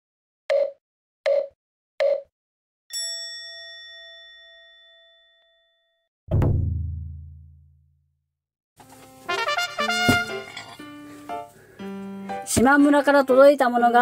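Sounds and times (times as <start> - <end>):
bright bell-like ding: 2.9 - 6.0
deep booming hit: 6.3 - 7.5.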